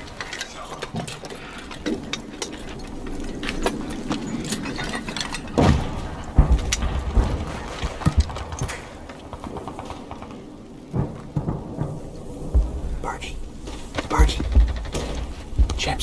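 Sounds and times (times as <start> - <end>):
clinking and rattling gear: 0.0 - 12.0
steady background rumble: 0.0 - 16.0
dull low thuds: 10.9 - 16.0.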